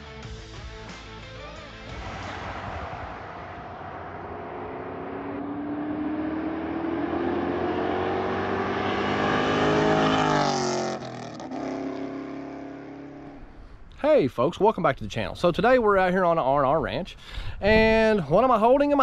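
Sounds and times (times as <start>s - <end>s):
car accelerating past: 2.0s - 13.5s.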